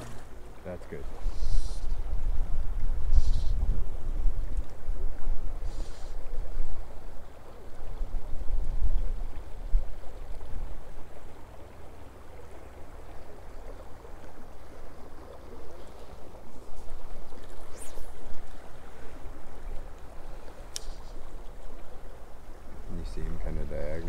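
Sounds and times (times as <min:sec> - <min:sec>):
river current flowing: 0:00.0 - 0:24.0
faint ticks: 0:19.9 - 0:21.2.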